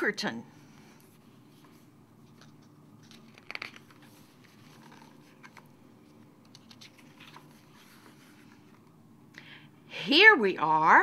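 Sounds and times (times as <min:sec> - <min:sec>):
book pages turning: 0:01.0 - 0:09.0
paper crinkle: 0:01.6 - 0:08.8.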